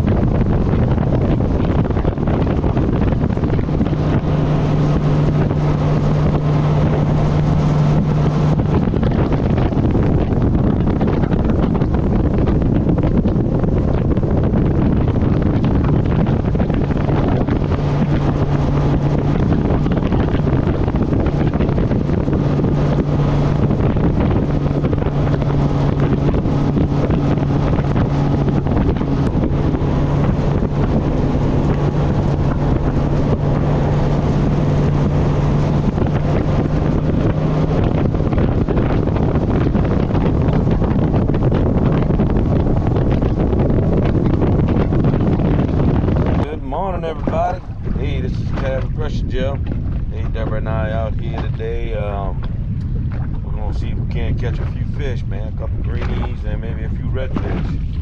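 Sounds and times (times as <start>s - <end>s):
outboard motor drone: 0.0s - 58.0s
wind rushing over microphone: 0.0s - 58.0s.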